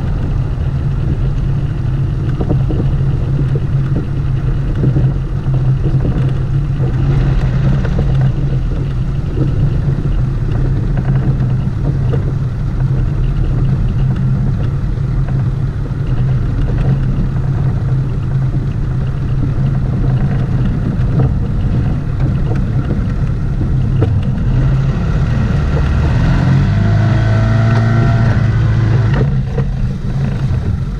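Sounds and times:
outboard motor running: 0.0 - 30.9.

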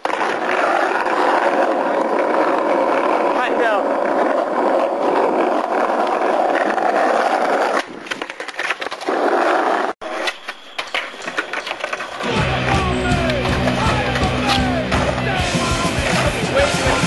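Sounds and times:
skateboard clicks and knocks: 0.0 - 17.0
skateboard wheels rolling on asphalt: 0.0 - 17.0
music: 12.2 - 17.0.

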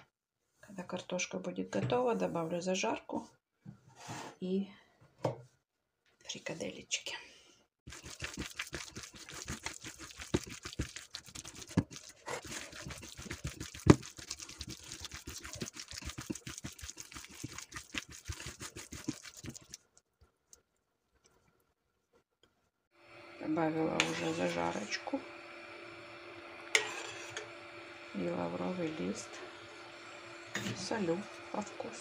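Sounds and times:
meat being kneaded by hand: 7.9 - 20.7.

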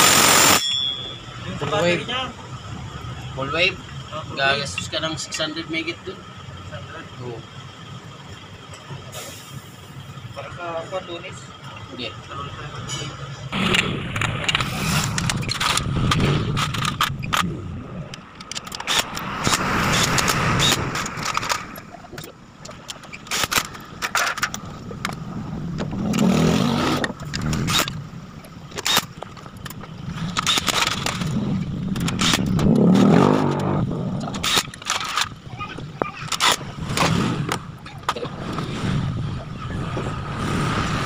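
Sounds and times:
low rumble: 13.5 - 18.5
metal tools clicking and clinking: 18.3 - 25.2.

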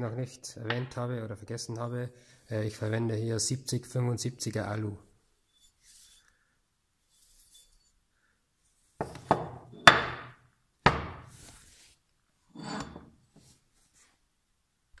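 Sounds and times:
metal plate knocking on workbench: 9.0 - 11.2
metal plate scraping on bench: 12.5 - 13.2.

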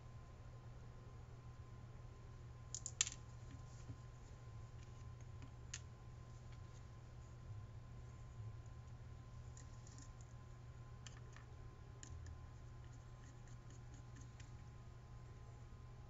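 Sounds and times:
faint low hum: 0.0 - 16.0
small parts clicking on workbench: 2.7 - 3.2.

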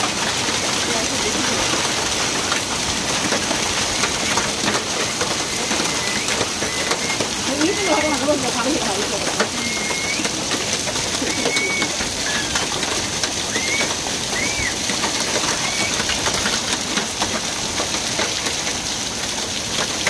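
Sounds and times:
hail and rain falling: 0.0 - 20.0
hailstones striking ticks: 0.0 - 20.0
bird chirping: 5.0 - 8.2.

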